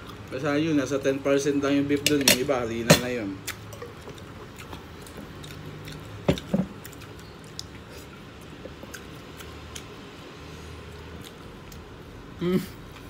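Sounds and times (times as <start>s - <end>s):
wet chewing and squishing: 3.4s - 12.1s.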